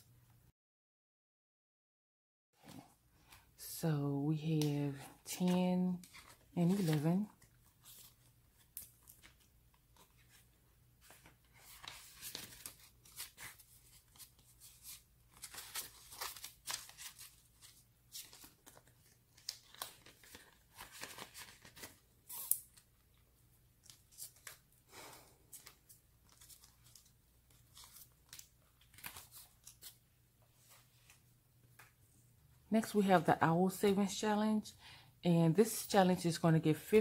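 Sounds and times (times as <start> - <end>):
paper and plastic rustling: 5.0 - 22.9.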